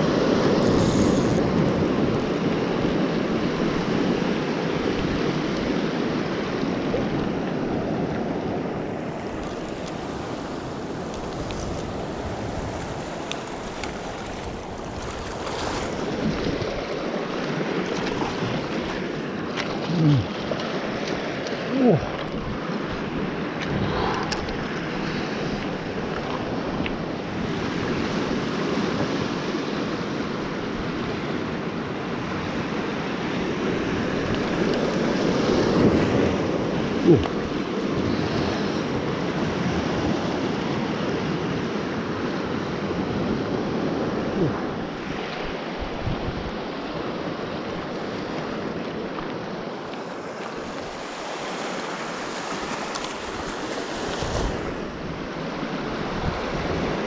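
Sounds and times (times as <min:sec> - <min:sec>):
wind on microphone: 0:00.0 - 0:19.0, 0:21.8 - 0:29.8, 0:33.4 - 0:49.6, 0:50.6 - 0:57.0
waves breaking over rock: 0:00.0 - 0:57.0.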